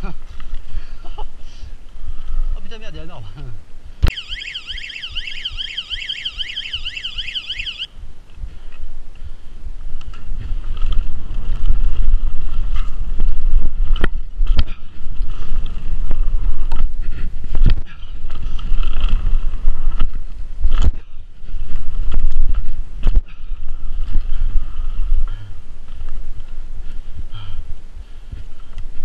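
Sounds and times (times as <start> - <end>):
bike tyres on dirt: 0.0 - 2.6, 3.2 - 29.0
wind buffeting microphone: 0.0 - 29.0
bike knocking and rattling: 8.4 - 27.6.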